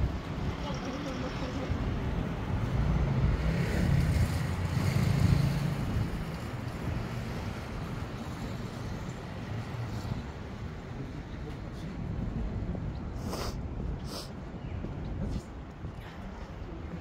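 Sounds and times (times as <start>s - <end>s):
steady traffic noise: 0.0s - 17.0s
loud vehicle engine: 2.7s - 7.0s.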